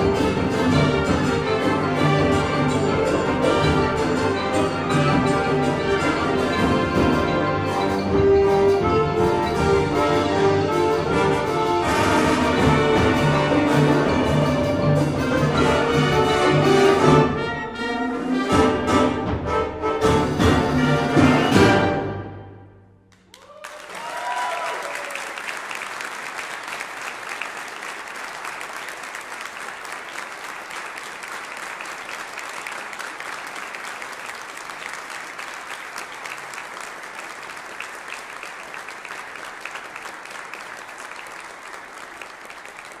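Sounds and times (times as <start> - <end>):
audience applause: 23.1 - 43.0
whoops and cheers: 23.3 - 25.6.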